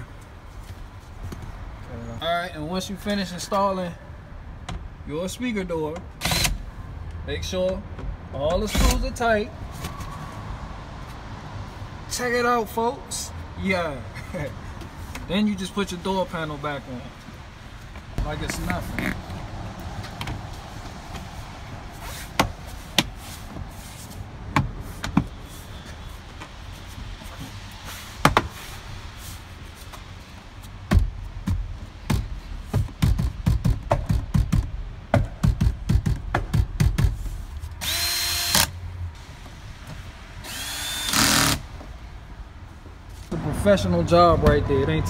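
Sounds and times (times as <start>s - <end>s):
cordless drill driving screws: 6.2s - 6.6s, 37.8s - 38.7s, 40.4s - 41.6s.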